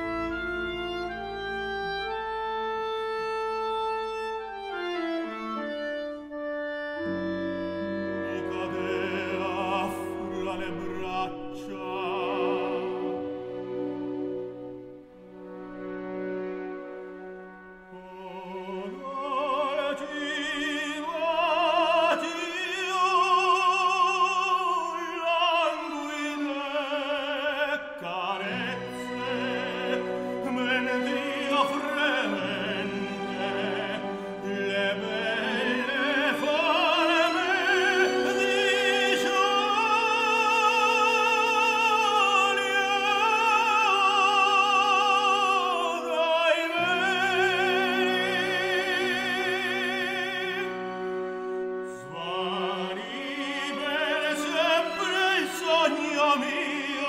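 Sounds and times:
orchestral accompaniment: 0.0 - 57.0
operatic voice singing: 7.8 - 13.9, 17.8 - 57.0.

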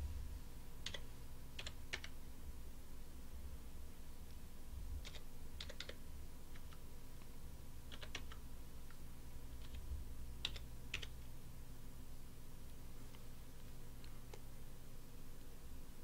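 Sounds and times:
faint low hum: 0.0 - 16.0
keyboard keys clicking: 0.8 - 1.0, 1.6 - 2.1, 5.0 - 6.8, 7.9 - 8.4, 9.6 - 11.2.

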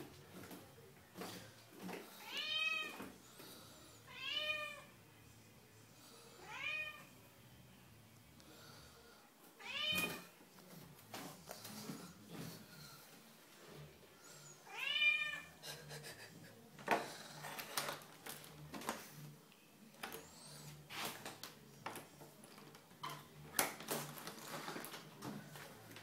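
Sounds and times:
cat meowing: 4.1 - 4.9, 9.6 - 10.3, 14.7 - 15.5.

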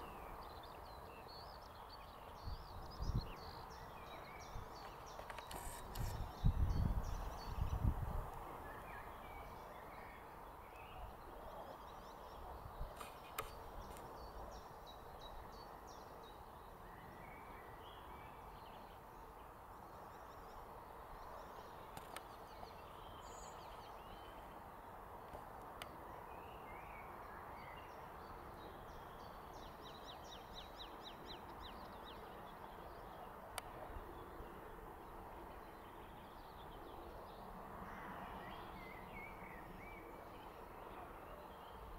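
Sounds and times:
songbird chirps and calls: 0.0 - 41.9
faint clicks: 13.0 - 14.1, 25.2 - 26.0.

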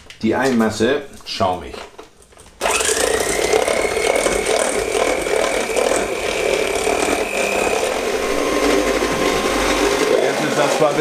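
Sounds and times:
electric hand mixer whining: 2.6 - 11.0.

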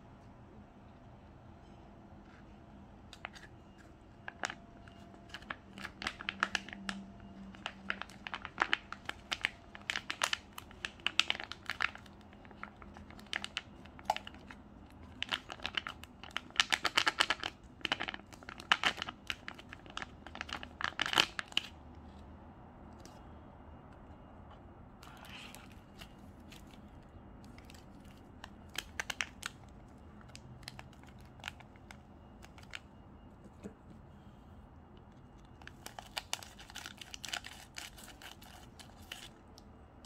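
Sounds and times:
foil pouch crinkling: 4.3 - 21.8, 25.0 - 32.8, 35.5 - 39.4.

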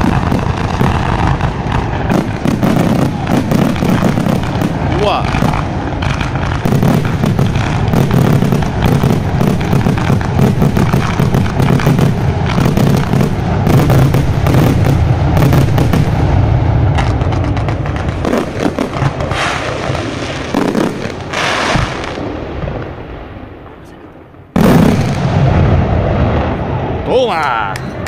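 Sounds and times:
deep rumble of fireworks: 0.0 - 28.0
fireworks bangs and crackles: 0.0 - 28.0.

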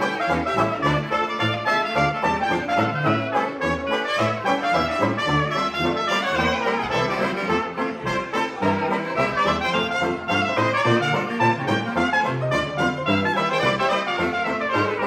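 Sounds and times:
jazz band playing: 0.0 - 15.0
tuba bass line: 0.0 - 15.0.

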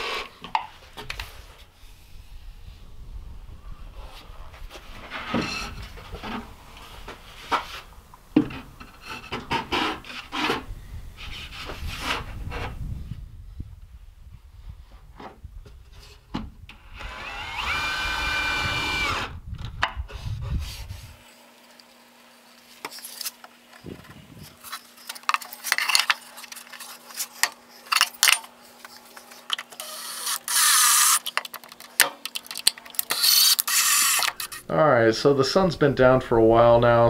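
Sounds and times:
drill boring into plywood: 16.8 - 19.3, 29.8 - 31.2, 33.1 - 34.6
cordless drill whine: 16.8 - 19.4, 29.8 - 31.2, 33.1 - 34.7.

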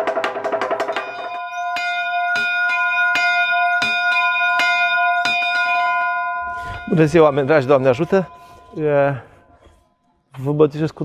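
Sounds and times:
wooden board beaten with mallets: 0.0 - 5.8
small church bell ringing: 1.0 - 10.2.

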